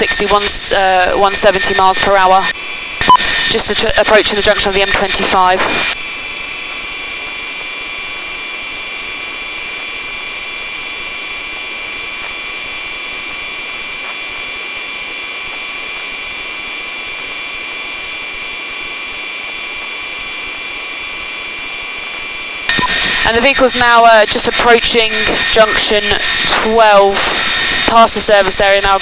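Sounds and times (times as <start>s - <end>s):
helicopter turbine whine: 0.0s - 29.0s.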